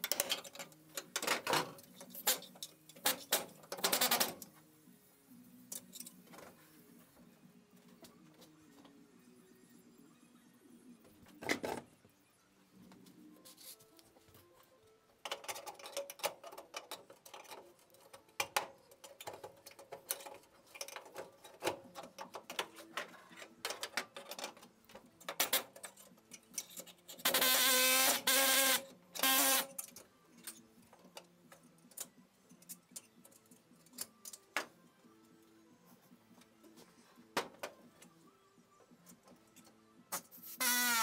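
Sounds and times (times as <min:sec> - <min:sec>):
pneumatic air tool whirring: 0:27.2 - 0:29.7, 0:40.4 - 0:41.0.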